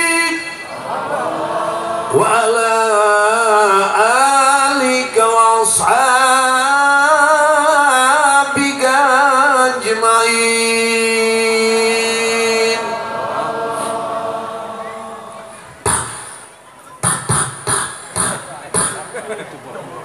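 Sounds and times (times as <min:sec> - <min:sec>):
man singing devotional chant: 0:00.0 - 0:00.6, 0:02.0 - 0:13.0.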